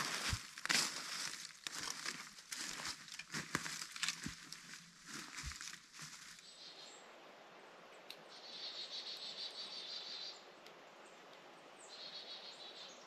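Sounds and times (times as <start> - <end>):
footsteps crunching dry leaves: 0.0 - 6.4
faint woodland ambience: 0.0 - 13.0.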